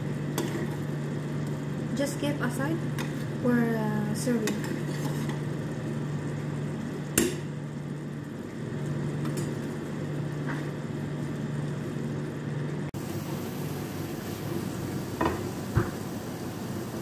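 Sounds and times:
steady hiss: 13.0 - 17.0.

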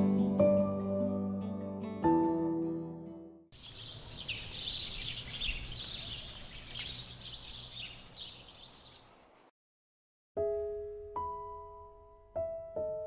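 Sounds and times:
faint outdoor hiss: 3.6 - 9.5
small birds chirping: 3.6 - 9.5
soft background music: 10.4 - 13.0.

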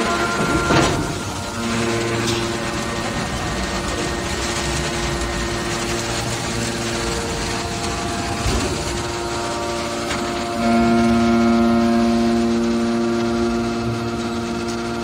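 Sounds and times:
hydraulic pump hum: 0.0 - 15.0.

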